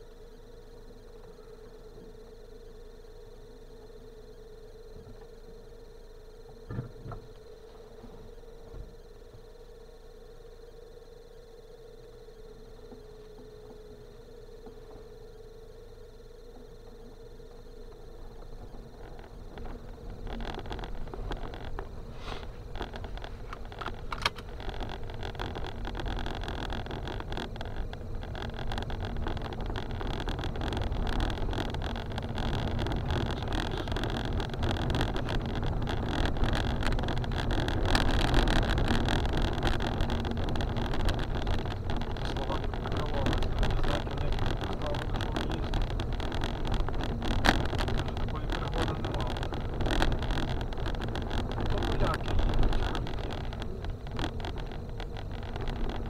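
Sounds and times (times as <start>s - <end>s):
car engine and tyres rumbling: 0.0s - 56.0s
stones and suspension knocking: 17.4s - 56.0s.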